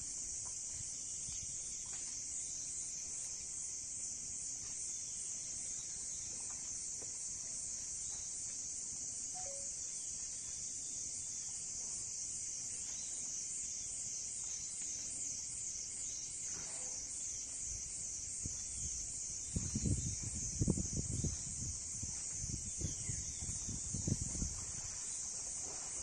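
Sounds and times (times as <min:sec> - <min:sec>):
insect chorus drone: 0:00.0 - 0:26.0
two-note descending call: 0:09.4 - 0:09.7.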